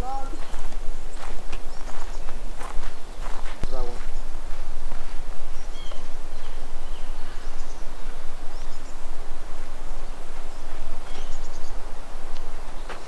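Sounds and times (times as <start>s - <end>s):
wind rumbling on microphone: 0.0s - 13.0s
high bird chirps: 5.5s - 9.1s, 10.0s - 11.9s.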